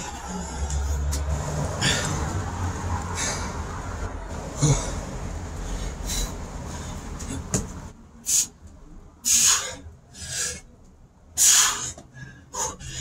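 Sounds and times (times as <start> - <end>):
man exhaling forcefully: 4.5 - 5.0.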